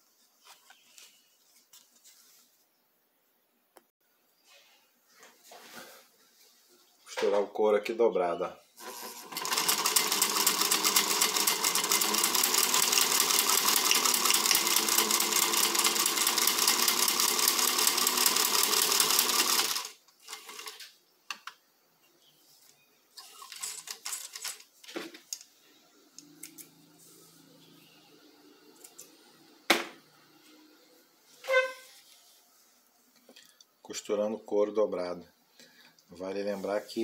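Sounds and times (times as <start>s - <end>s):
sewing machine stitching: 8.8s - 20.9s.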